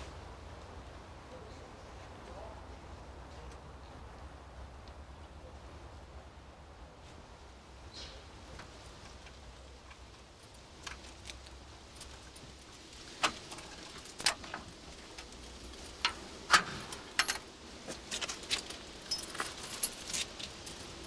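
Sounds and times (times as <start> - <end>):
keys jangling: 16.6 - 17.4, 18.0 - 21.0.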